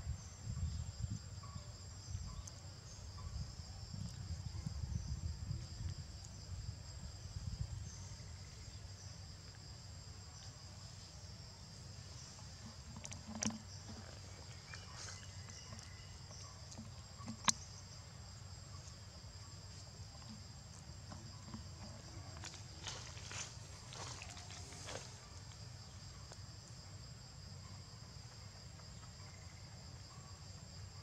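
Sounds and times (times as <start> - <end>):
insects buzzing: 0.0 - 31.0.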